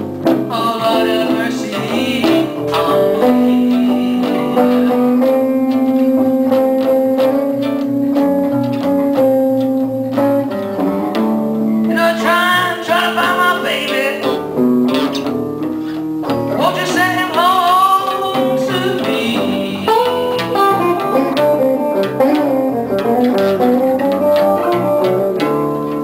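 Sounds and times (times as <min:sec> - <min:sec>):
blues guitars playing: 0:00.0 - 0:26.0.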